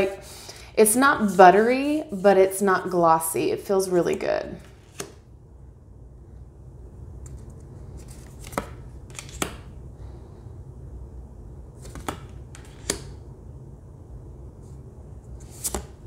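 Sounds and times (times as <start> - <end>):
card snapping on card: 11.8 - 13.2
card sliding off deck: 15.4 - 16.0.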